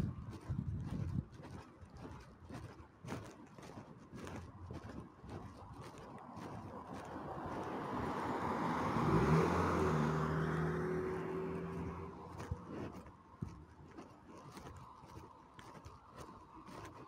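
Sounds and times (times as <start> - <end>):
car passing by: 6.7 - 12.8.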